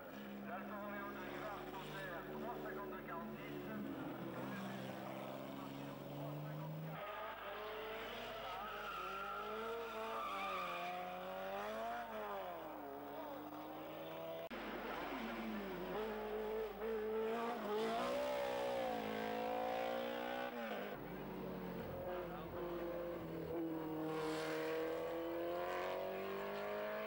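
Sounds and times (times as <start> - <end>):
race car engines accelerating: 0.0 - 27.0.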